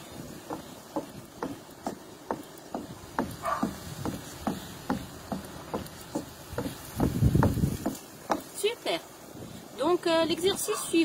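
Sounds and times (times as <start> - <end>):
jumping thuds on wooden deck: 0.0 - 8.7.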